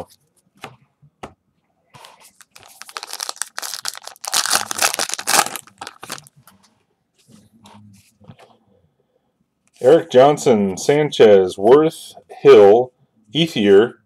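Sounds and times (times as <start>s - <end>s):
wrapper tearing and crinkling: 2.3s - 6.3s.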